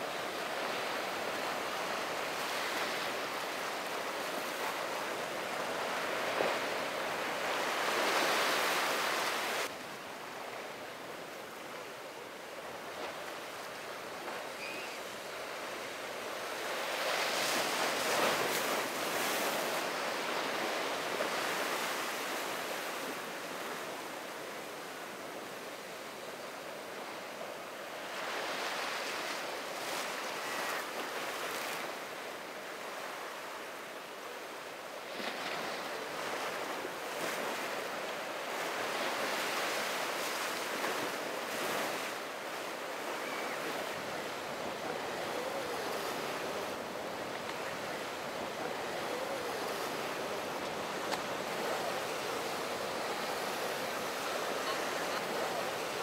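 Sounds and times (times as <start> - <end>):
ocean waves breaking: 35.1 - 56.0.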